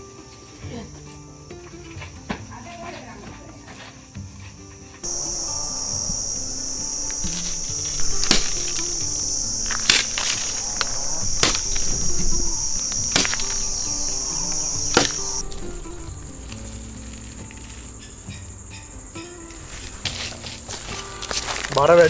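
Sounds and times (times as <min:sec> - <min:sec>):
soft background music: 0:00.0 - 0:22.0
crickets chirring: 0:05.0 - 0:22.0
bamboo pole wooden knocks: 0:09.6 - 0:15.7.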